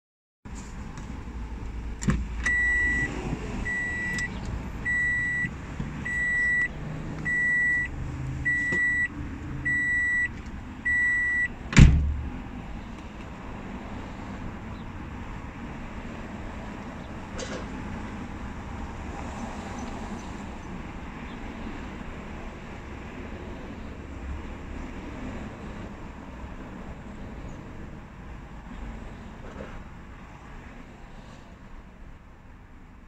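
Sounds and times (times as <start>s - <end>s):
vehicle warning beeps: 2.4s - 11.6s
loud thump: 11.7s - 12.3s.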